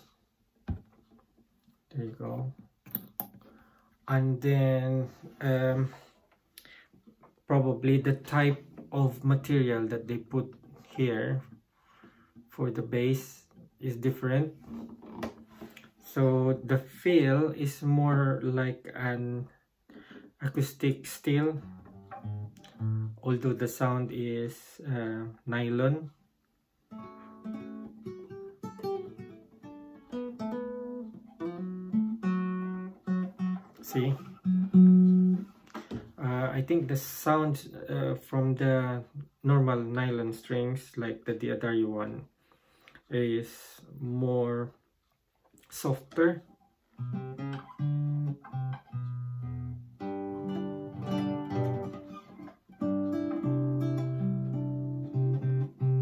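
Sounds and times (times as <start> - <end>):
classical guitar plucked notes: 21.6 - 23.6, 26.9 - 36.2, 46.0 - 56.0.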